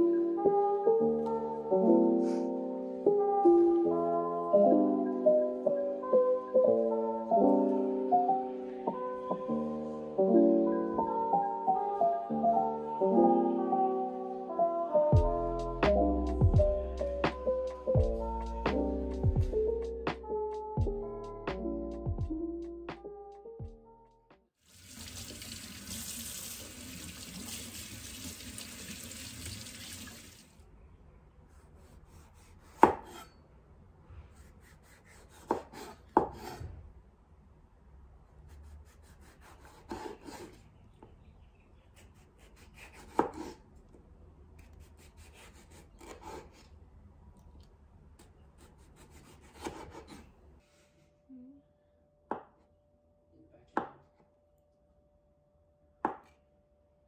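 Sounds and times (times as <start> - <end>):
knife slicing on cutting board: 31.5 - 33.4, 34.4 - 36.7, 42.0 - 43.6, 48.6 - 50.3.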